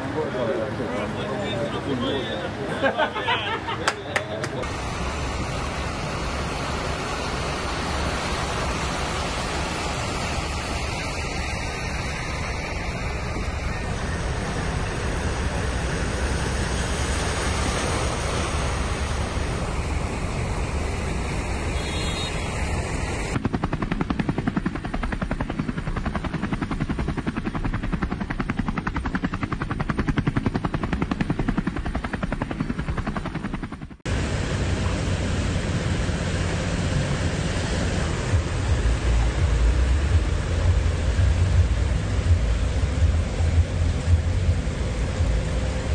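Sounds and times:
low fluttering rumble: 4.6s - 21.8s, 22.6s - 45.9s
rain and rushing floodwater: 4.6s - 23.3s, 34.1s - 45.9s.

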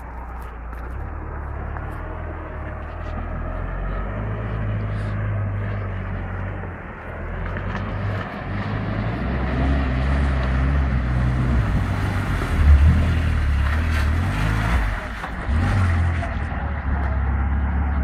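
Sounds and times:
water splashing around wheels: 7.1s - 16.6s.

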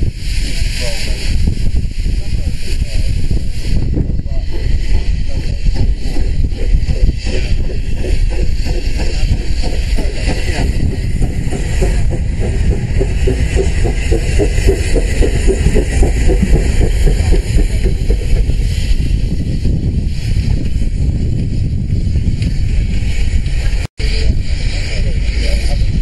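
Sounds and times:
steam railcar passing: 0.0s - 26.0s.

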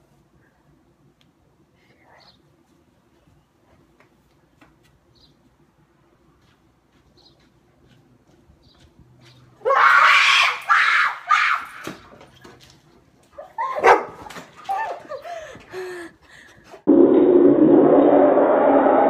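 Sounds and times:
dog barking and yelping: 13.5s - 15.0s
slowed-down replay: 16.9s - 19.0s.

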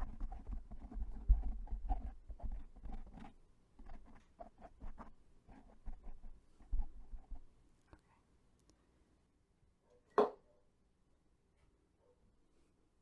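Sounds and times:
fingers rubbing microphone windscreen: 0.0s - 7.5s.

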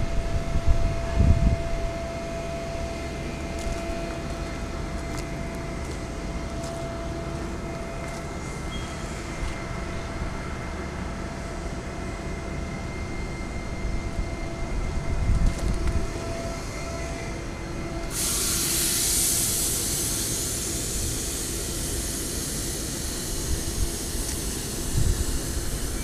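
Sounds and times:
diesel engine idling with whine: 0.0s - 26.0s
loud rushing hiss: 16.1s - 26.0s.

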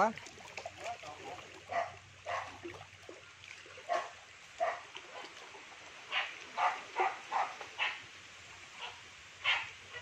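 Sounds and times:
dog barking: 1.7s - 2.5s, 3.9s - 4.8s, 6.1s - 8.0s, 8.8s - 10.0s.

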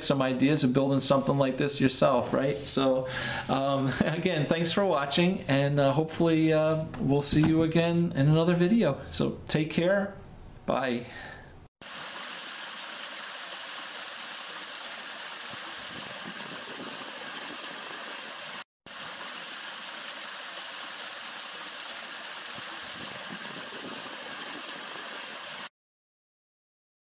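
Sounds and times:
waterfall splashing into basin: 11.8s - 25.7s.

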